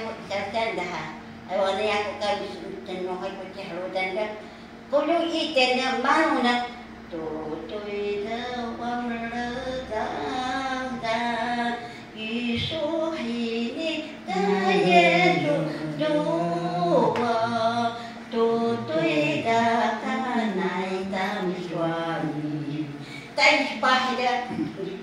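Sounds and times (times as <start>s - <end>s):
person singing long notes: 18.3s - 23.0s.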